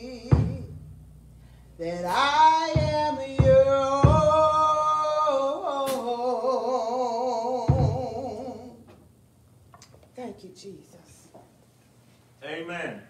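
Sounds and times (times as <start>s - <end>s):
woman singing gospel: 0.0s - 0.8s, 1.8s - 8.9s
low thumps: 0.0s - 5.3s.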